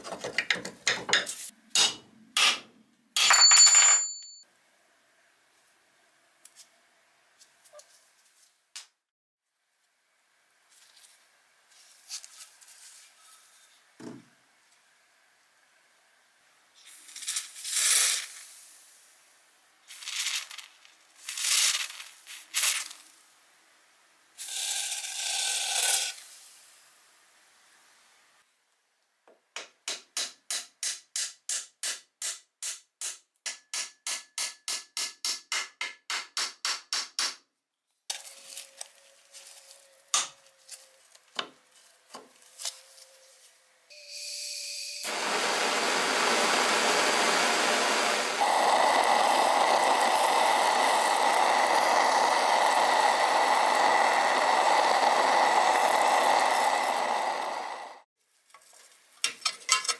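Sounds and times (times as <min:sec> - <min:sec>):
blowtorch flame rushing: 0:45.1 - 0:58.1.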